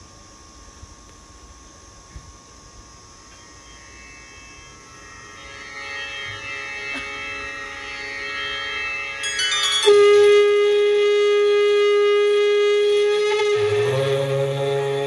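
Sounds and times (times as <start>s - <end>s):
conch shell blown: 3.1s - 15.0s
low drone with other notes: 3.1s - 15.0s.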